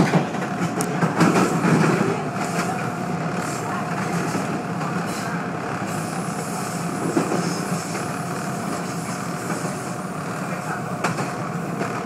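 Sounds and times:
subway train wheels on rails: 0:00.0 - 0:12.0.

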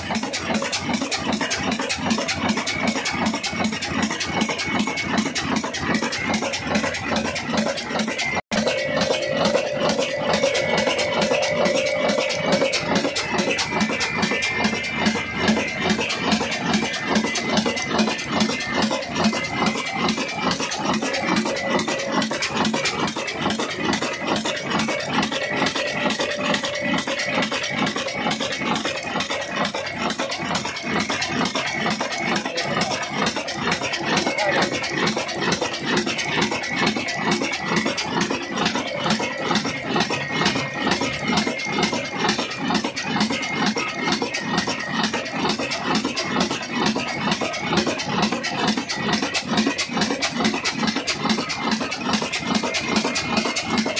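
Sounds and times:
diesel engine rhythmic clatter: 0:00.0 - 0:53.9.

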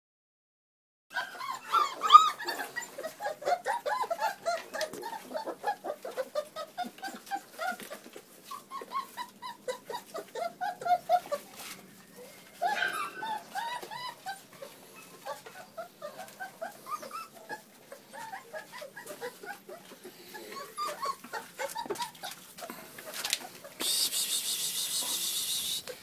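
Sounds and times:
puppies whimpering and yipping: 0:01.1 - 0:26.0.

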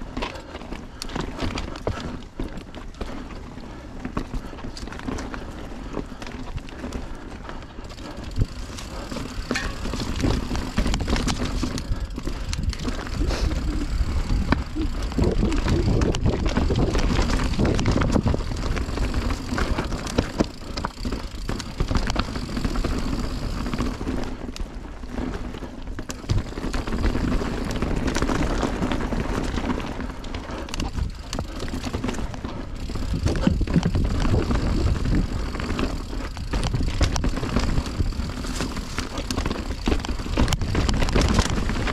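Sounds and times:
bike rattles and clicks: 0:00.0 - 0:41.9
bike tyre noise on dirt: 0:00.0 - 0:41.9
wind rumble on microphone: 0:08.1 - 0:20.8, 0:30.7 - 0:41.9.

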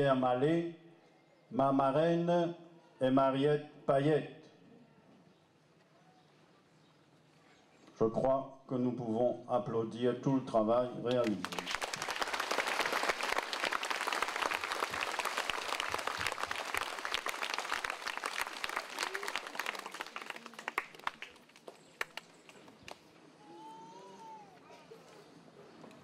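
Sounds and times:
crowd applauding: 0:11.2 - 0:23.0.

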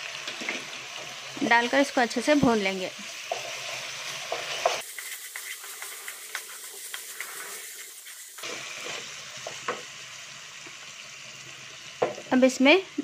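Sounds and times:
onions sizzling in hot oil: 0:00.0 - 0:13.0
spatula scraping and tapping pan: 0:03.2 - 0:07.6.

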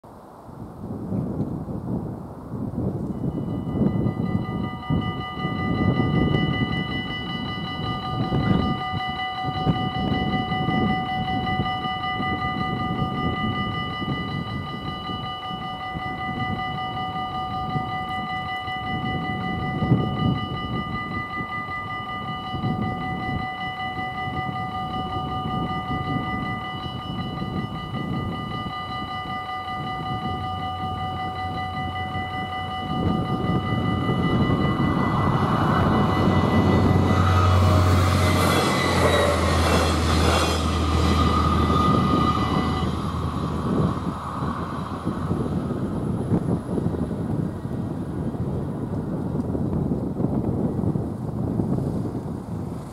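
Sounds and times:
wind buffeting microphone: 0:00.0 - 0:52.9
approaching train rumble: 0:01.1 - 0:52.9
level crossing bell ringing: 0:03.2 - 0:43.0.

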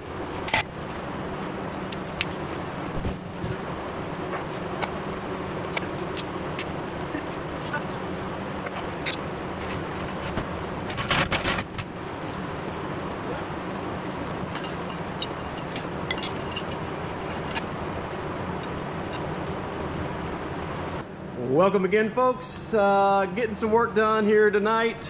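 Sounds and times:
low background hum: 0:00.0 - 0:25.0
metal clatter and clicks: 0:14.0 - 0:17.7.

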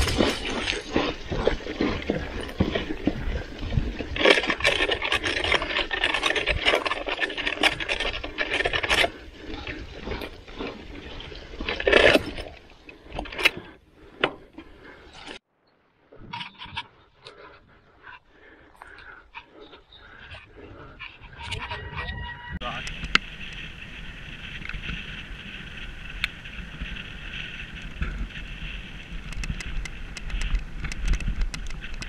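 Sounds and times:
bike rattling over bumps: 0:00.0 - 0:15.4, 0:22.6 - 0:32.0
bike tyres on dirt: 0:00.0 - 0:32.0.

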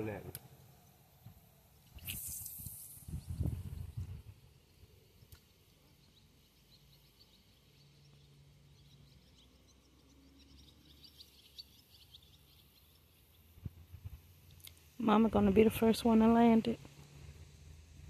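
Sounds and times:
faint bird chirps: 0:01.6 - 0:14.1.

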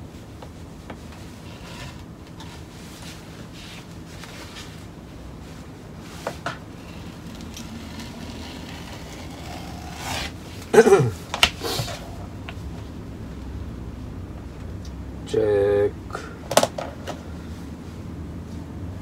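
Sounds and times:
wetsuit rubbing on wood: 0:06.8 - 0:10.4.

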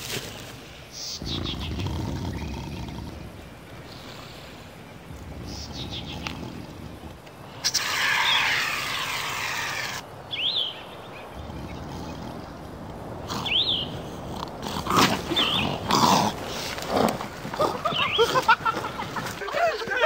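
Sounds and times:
bird chirping: 0:00.9 - 0:19.5
creature growling and roaring: 0:01.2 - 0:03.6, 0:05.0 - 0:10.1, 0:11.3 - 0:19.0.

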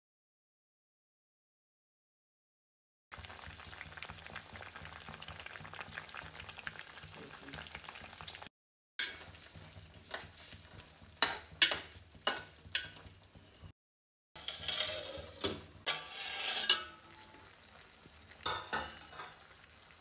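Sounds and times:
pot bubbling: 0:03.1 - 0:13.7, 0:14.4 - 0:20.0
ladle clinking against pot: 0:18.4 - 0:19.4.

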